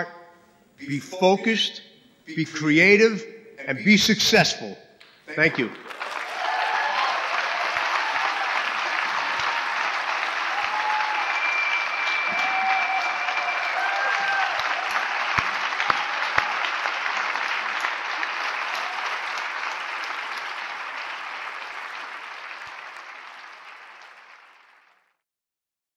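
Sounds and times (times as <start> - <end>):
audience applauding: 5.4 - 25.2.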